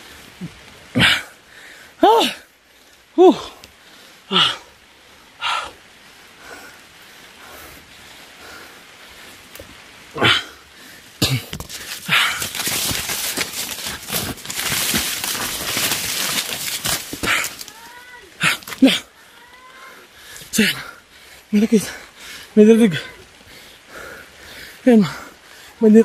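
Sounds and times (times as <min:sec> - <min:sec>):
dry corn leaves rustling: 0:10.8 - 0:20.4.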